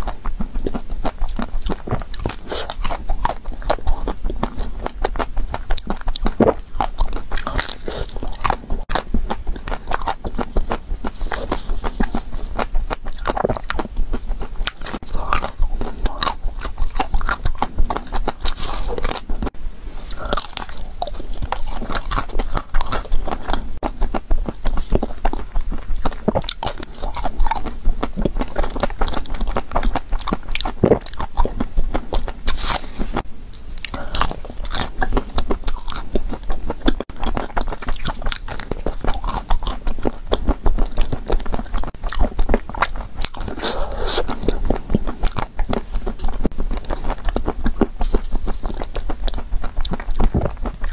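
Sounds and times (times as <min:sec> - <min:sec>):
chocolate shell crunching: 0:00.0 - 0:33.0
wet mouth sounds: 0:00.0 - 0:50.9.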